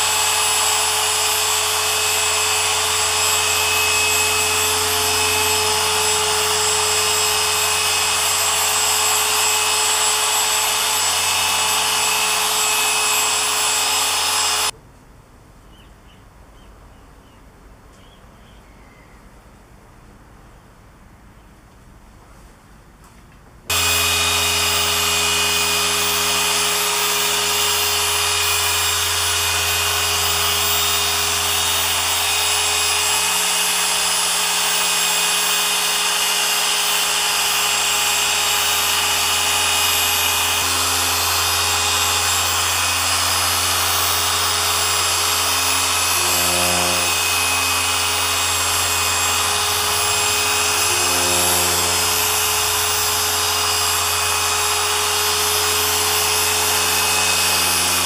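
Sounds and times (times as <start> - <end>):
electric polisher running: 0.0 - 14.7, 23.7 - 58.0.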